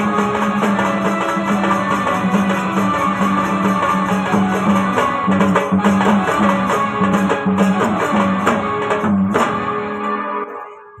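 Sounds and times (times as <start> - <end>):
hand-drum beat: 0.0 - 10.2
keyboard melody: 0.0 - 11.0.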